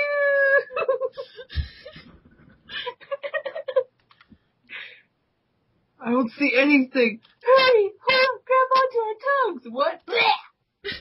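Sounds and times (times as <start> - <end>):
person giggling: 0.5 - 4.0.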